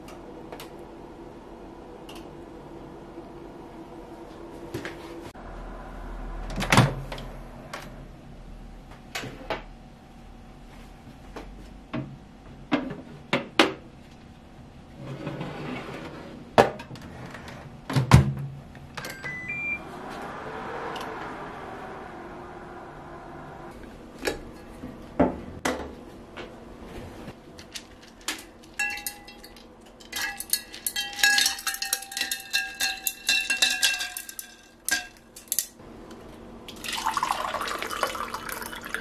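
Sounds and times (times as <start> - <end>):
oven fan humming: 0.0 - 31.8
short rising beeps: 19.0 - 20.0.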